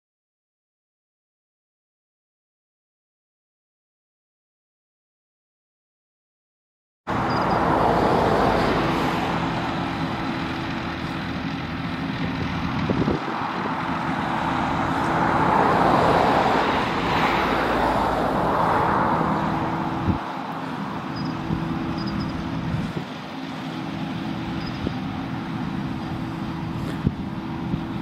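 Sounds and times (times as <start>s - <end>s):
forage harvester drone: 7.1s - 28.0s.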